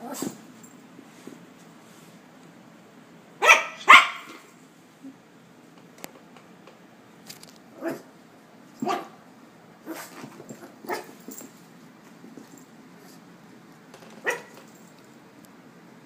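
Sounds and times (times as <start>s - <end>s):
small dog barking: 3.4s - 4.4s, 8.8s - 9.2s, 10.8s - 11.1s, 14.2s - 14.6s.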